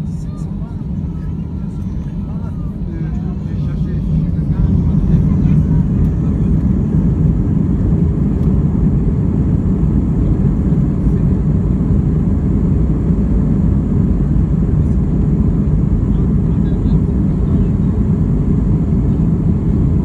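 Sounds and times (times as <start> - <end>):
airliner cabin rumble while taxiing: 0.0 - 20.0.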